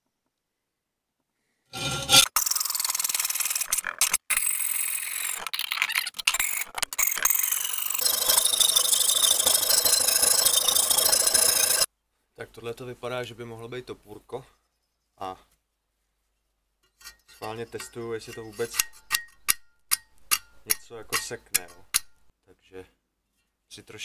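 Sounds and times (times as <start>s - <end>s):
hand tool scraping rusty metal: 1.7s - 2.4s, 6.4s - 11.9s, 16.8s - 22.2s.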